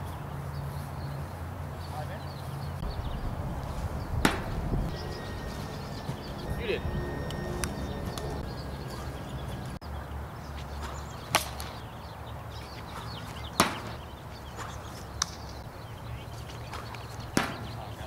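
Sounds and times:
wiffle ball smacks: 4.2s - 4.6s, 10.8s - 11.8s, 13.5s - 14.0s, 14.6s - 15.5s, 16.7s - 17.8s.

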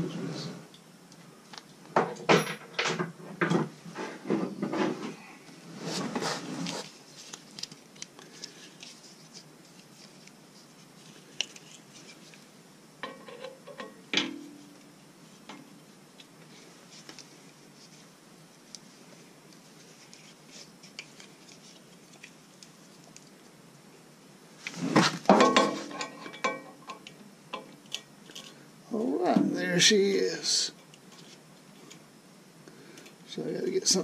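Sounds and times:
metal hand tools clattering: 25.3s - 26.8s.

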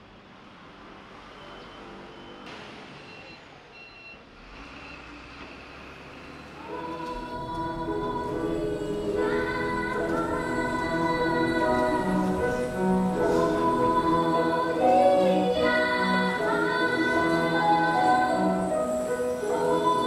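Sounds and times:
children's choir singing: 6.4s - 20.0s.

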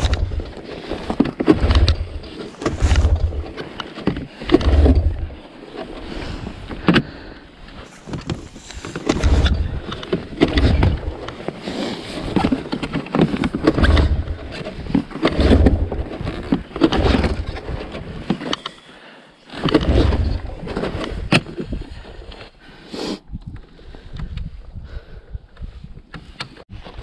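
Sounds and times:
wind on microphone: 0.0s - 3.6s, 8.0s - 11.4s, 23.2s - 27.0s
machine knocking and rattling: 0.0s - 5.4s, 8.2s - 11.3s, 12.3s - 18.1s
snowmobile engine: 0.0s - 18.4s.

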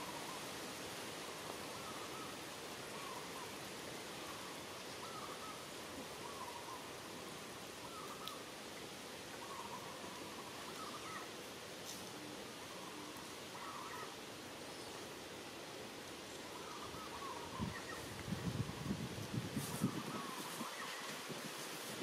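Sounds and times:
outdoor hiss: 0.0s - 22.0s
bird calling: 4.2s - 6.9s, 9.3s - 11.4s, 12.6s - 14.2s, 16.3s - 18.2s.

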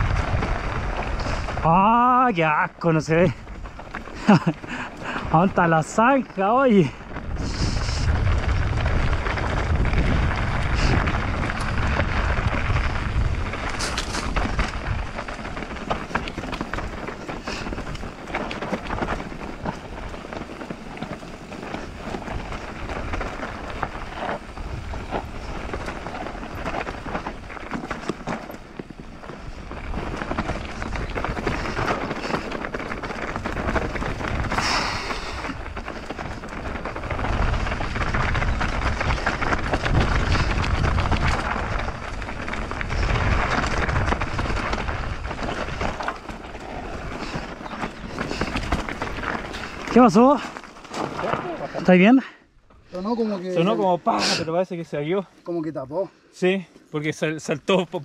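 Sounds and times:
wind on microphone: 0.0s - 1.9s, 6.8s - 27.6s, 29.3s - 49.9s
tyres crunching over dirt: 0.0s - 55.8s
bike knocks and rattles: 8.3s - 35.0s, 35.6s - 51.6s.

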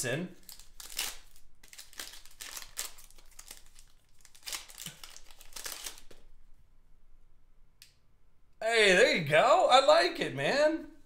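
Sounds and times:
foil wrapper tearing and crinkling: 0.4s - 6.2s.

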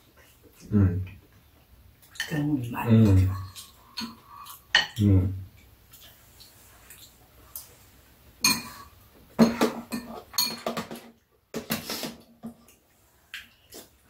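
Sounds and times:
utensils clinking against bowls: 8.4s - 11.1s.

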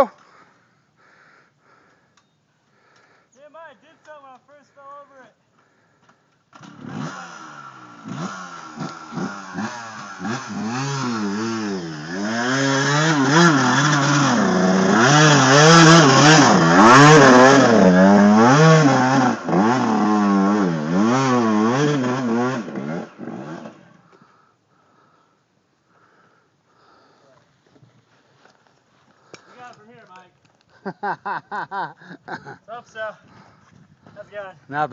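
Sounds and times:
dirt bike engine revving: 6.5s - 24.0s.

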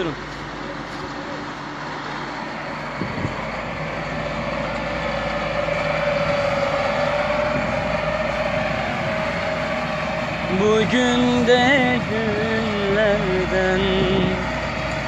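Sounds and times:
vehicle engine and road noise: 0.0s - 15.0s
rising whine: 1.6s - 15.0s.

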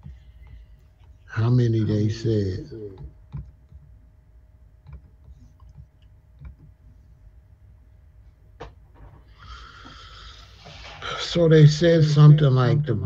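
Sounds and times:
low room hum: 0.0s - 13.0s
faint computer clicks: 4.8s - 6.8s.

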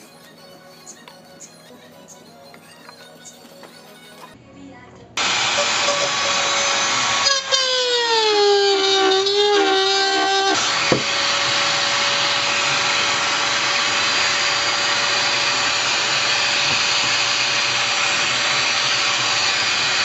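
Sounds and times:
router whining: 5.2s - 20.0s.

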